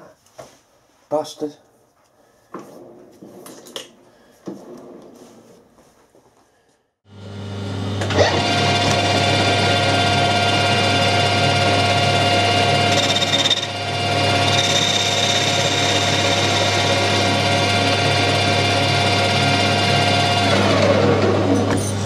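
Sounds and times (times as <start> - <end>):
high whine of cutting tool: 7.1 - 21.5
metal lathe humming and whining: 8.0 - 22.0.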